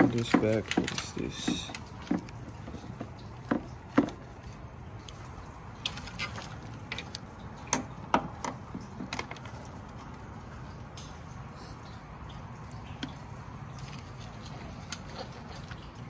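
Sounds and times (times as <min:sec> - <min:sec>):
clicks and knocks of handling wiring: 0:00.0 - 0:04.3, 0:05.8 - 0:10.2.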